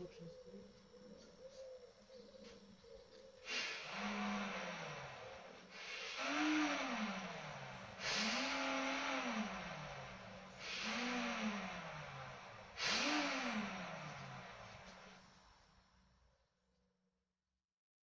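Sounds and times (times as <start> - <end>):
paddlewheel whirring: 3.5 - 14.8.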